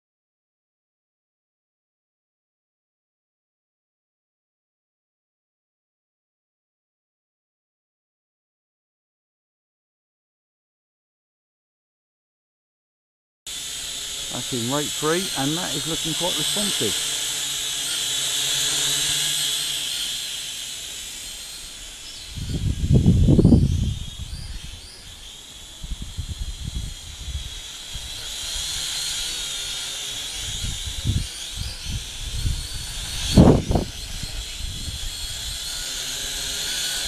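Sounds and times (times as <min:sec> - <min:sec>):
quadcopter propellers whining: 0:13.5 - 0:37.0
wind buffeting microphone: 0:22.2 - 0:24.9, 0:25.8 - 0:28.8, 0:30.4 - 0:35.7.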